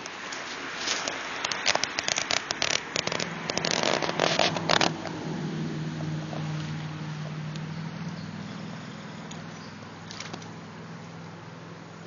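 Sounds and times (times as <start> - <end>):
rustling through grass and stones: 0.0 - 5.2
low engine hum: 0.0 - 12.0.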